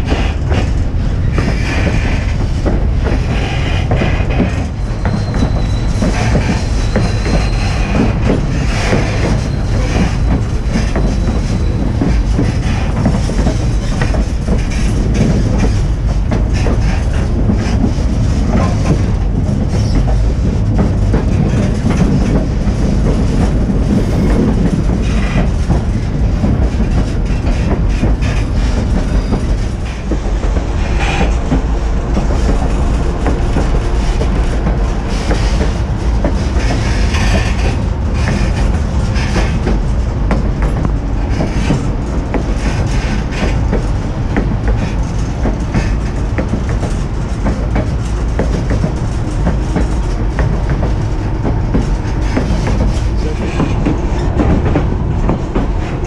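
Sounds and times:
train wheels rumbling on rail: 0.0 - 56.0
wheels clicking over rail joints: 0.0 - 56.0.

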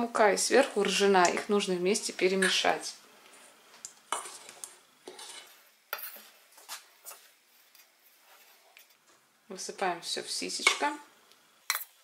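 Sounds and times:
spoon stirring flour in bowl: 3.8 - 9.0.

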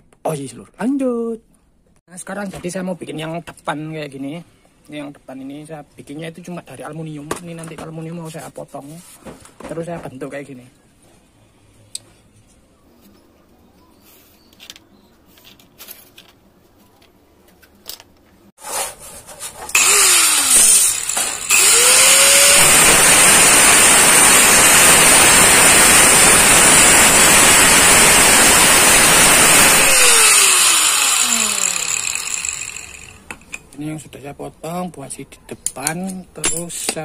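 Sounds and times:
angle grinder cutting metal: 19.7 - 33.6.

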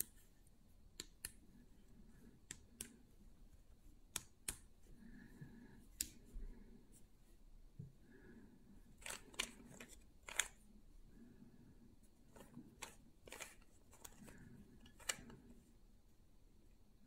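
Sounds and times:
puzzle cube clacking: 9.0 - 10.6, 12.3 - 15.5.

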